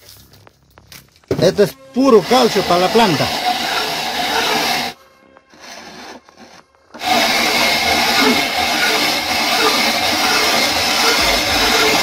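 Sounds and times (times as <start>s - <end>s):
grinder crushing eggshells: 2.3s - 4.9s, 5.8s - 12.0s.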